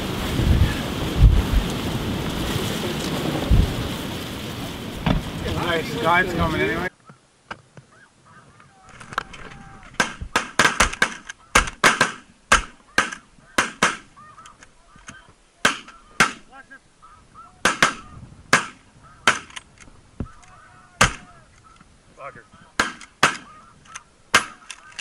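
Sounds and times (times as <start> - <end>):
snow goose honks: 12.8 - 19.5, 20.3 - 24.9.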